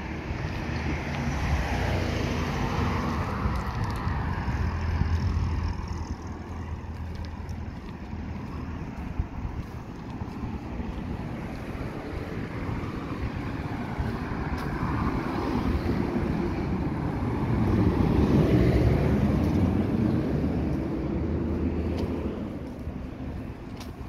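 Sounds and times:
vehicle passing: 0:00.0 - 0:24.0.

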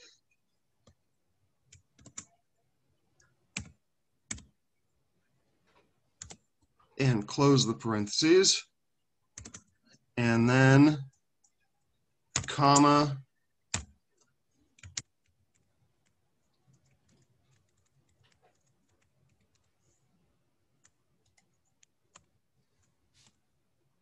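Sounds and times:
computer keyboard keystrokes: 0:01.7 - 0:02.4, 0:03.2 - 0:04.5, 0:06.2 - 0:06.4, 0:09.4 - 0:09.8, 0:12.3 - 0:12.8, 0:13.7 - 0:19.7, 0:20.8 - 0:22.3.

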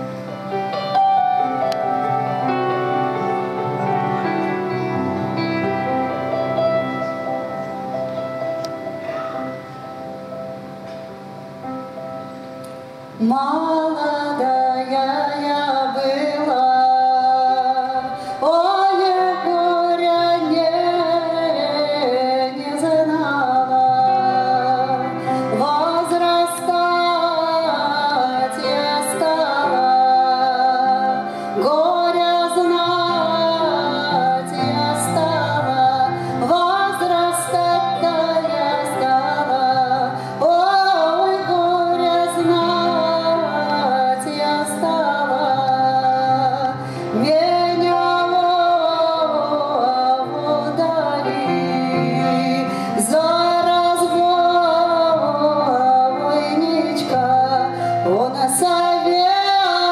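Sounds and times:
grand piano accompaniment: 0:00.0 - 0:59.9
woman singing folk song: 0:13.1 - 0:59.9.

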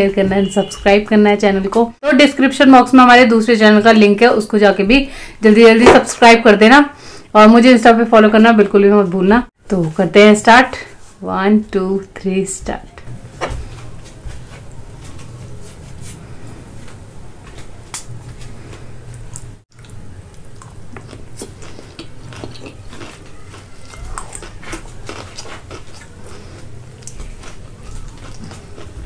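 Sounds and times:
person chewing and slurping noodles: 0:18.0 - 0:29.0.

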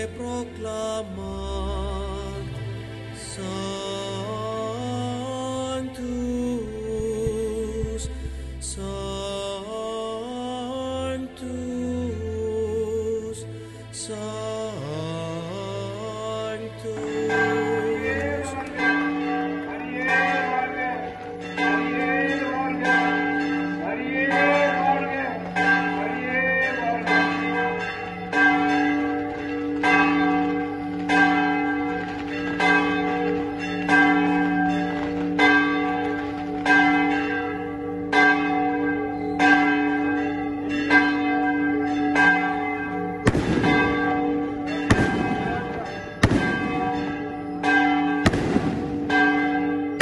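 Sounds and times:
church bell ringing: 0:00.0 - 0:01.2, 0:14.6 - 0:50.0
firecracker bangs: 0:43.2 - 0:44.1, 0:44.8 - 0:47.1, 0:48.2 - 0:49.2.

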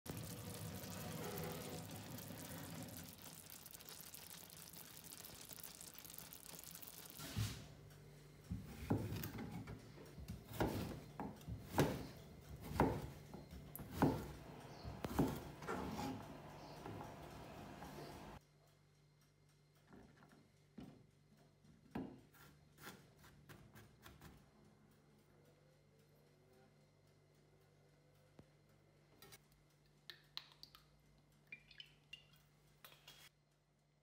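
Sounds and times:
knife chopping on cutting board: 0:10.5 - 0:13.2, 0:13.8 - 0:14.3, 0:14.9 - 0:16.2.

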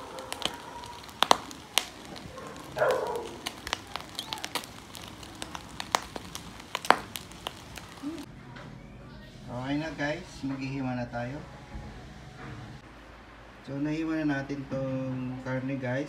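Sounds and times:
coals crackling and popping: 0:00.0 - 0:08.3
meat grilling over charcoal: 0:00.0 - 0:08.3.

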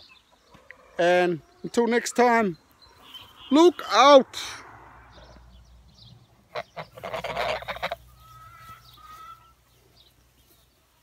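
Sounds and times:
geese honking: 0:06.4 - 0:09.8.

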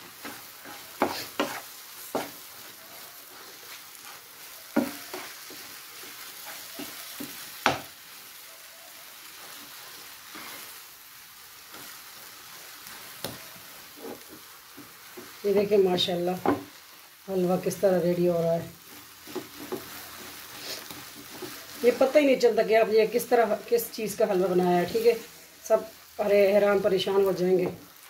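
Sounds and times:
spatula scraping a frying pan: 0:00.0 - 0:08.2, 0:09.2 - 0:10.9, 0:11.6 - 0:15.4, 0:18.8 - 0:22.1
low sizzle: 0:00.0 - 0:28.0.

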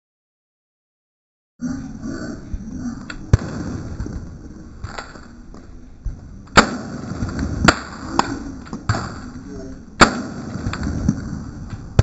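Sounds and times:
rifle shots: 0:06.5 - 0:09.3, 0:10.0 - 0:12.0.

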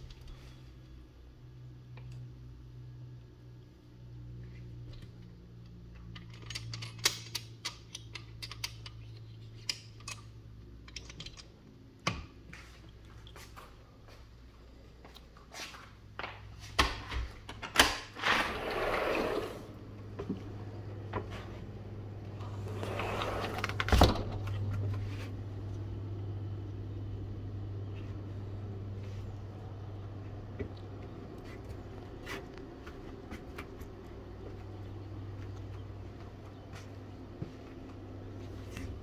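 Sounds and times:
steady low hum: 0:00.0 - 0:39.0
sliding glass door rumbling: 0:18.1 - 0:21.1, 0:22.0 - 0:24.8.

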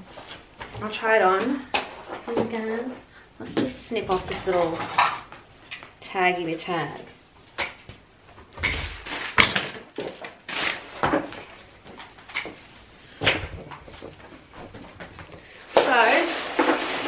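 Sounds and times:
fabric and tissue paper rustling: 0:13.8 - 0:17.0.

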